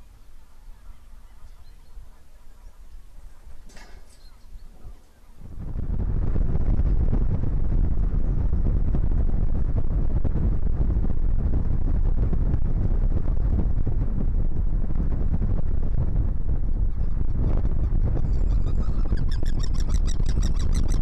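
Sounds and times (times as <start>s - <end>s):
wind buffeting microphone: 0.0s - 21.0s.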